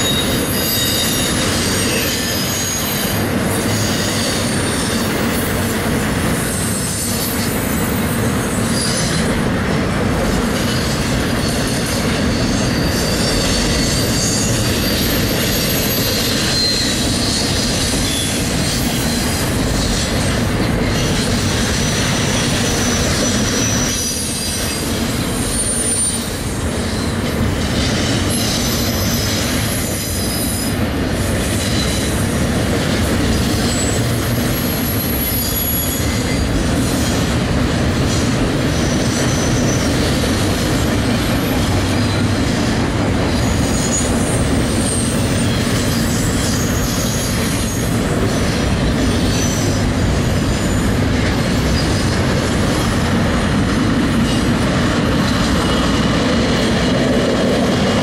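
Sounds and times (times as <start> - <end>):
high-pitched wheel squeals: 0.0 - 5.1, 10.6 - 20.2, 20.8 - 27.2, 34.8 - 36.5, 43.3 - 50.9
train wheels rumbling on rails: 0.0 - 58.0.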